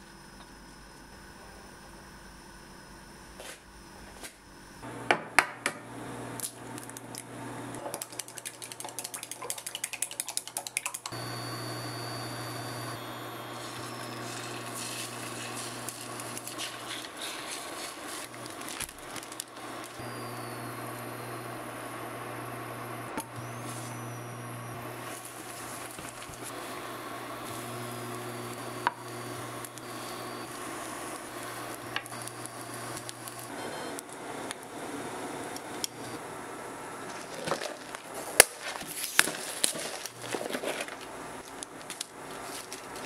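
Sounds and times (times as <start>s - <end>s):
fast clicking of beating: 8.0s - 11.2s
egg sizzling hiss in pan: 13.5s - 20.4s.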